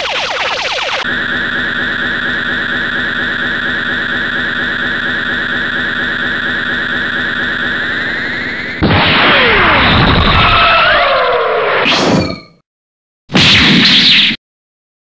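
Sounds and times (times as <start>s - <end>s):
rising laser-like sweeps: 0.0s - 9.9s
electronic energy-charge drone: 0.0s - 11.7s.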